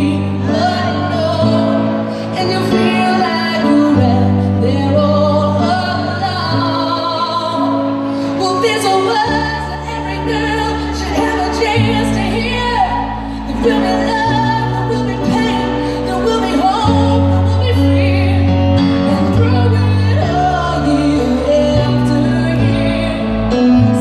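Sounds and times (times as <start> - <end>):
piano chords: 0.0 - 24.0
woman singing: 0.0 - 24.0.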